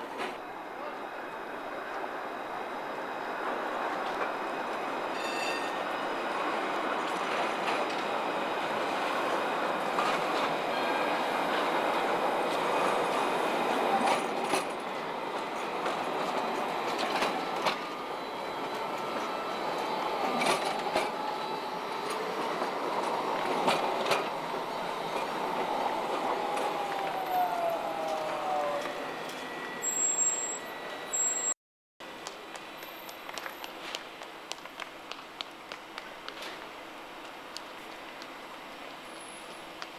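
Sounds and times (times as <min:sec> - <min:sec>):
tram rolling rumble: 0:00.0 - 0:39.9
wheels clicking over rail crossings: 0:03.5 - 0:31.5.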